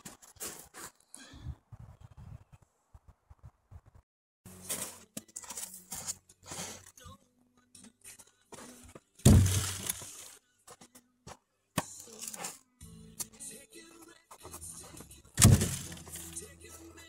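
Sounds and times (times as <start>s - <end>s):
logs knocking and scraping: 8.5s - 12.6s, 14.4s - 16.4s
heavy thud of log: 9.2s - 10.0s, 15.4s - 16.1s.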